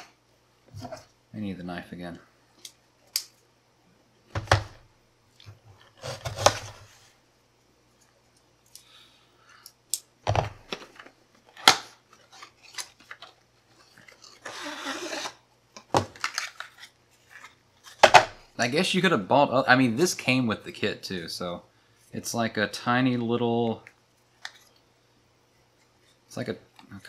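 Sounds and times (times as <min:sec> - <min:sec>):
packaging scraping and tearing: 0:05.8 - 0:06.9, 0:11.6 - 0:15.4
knife cutting packaging: 0:06.0 - 0:06.8, 0:14.1 - 0:15.4.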